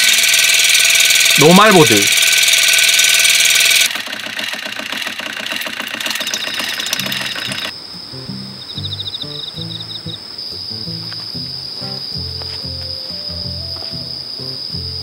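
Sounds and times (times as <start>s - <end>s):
water flosser motor buzzing: 0.0s - 7.7s
water jet hissing: 0.0s - 7.7s
crickets chirping: 0.0s - 15.0s
quiet rhythmic sound: 6.9s - 15.0s.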